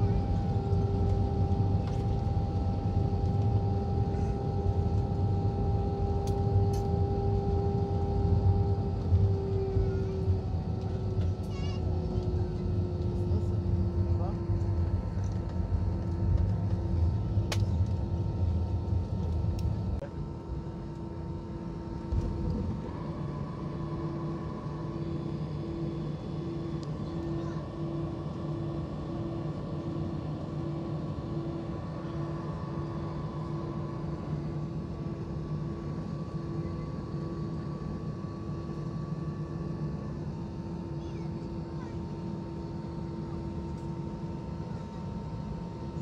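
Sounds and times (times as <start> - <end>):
airplane cabin low rumble: 0.0 - 46.0
jet engine hum: 0.0 - 46.0.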